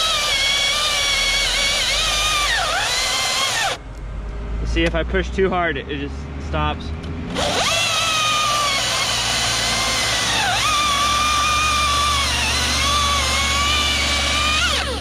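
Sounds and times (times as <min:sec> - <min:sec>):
chainsaw cutting wood: 0:00.0 - 0:03.8, 0:07.3 - 0:15.0.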